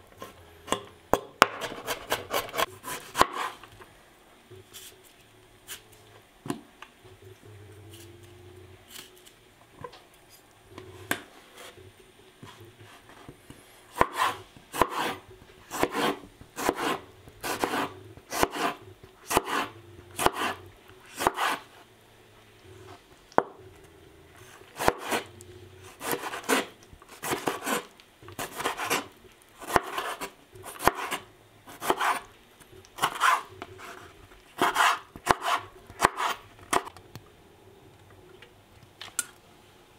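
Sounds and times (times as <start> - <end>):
knife chopping on cutting board: 0.7 - 3.6, 13.9 - 20.6, 21.2 - 21.6, 24.8 - 25.2, 25.9 - 32.3, 33.0 - 33.5, 34.6 - 36.9
quiet rubbing: 10.2 - 29.3.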